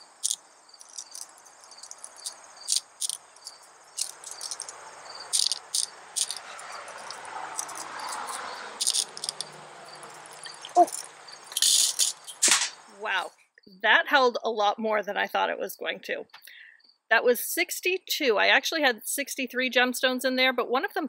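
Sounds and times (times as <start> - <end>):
glass gems clicking: 0.0 - 12.8
crickets chirring: 0.0 - 13.3.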